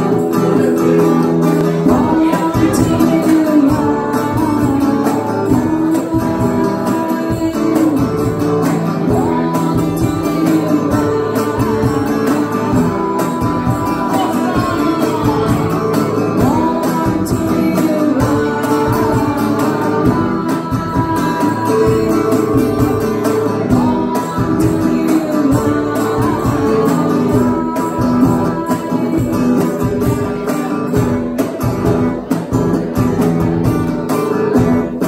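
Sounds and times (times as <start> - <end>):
electric guitar: 0.0 - 35.0
hand percussion: 0.0 - 35.0
woman singing: 0.0 - 35.0.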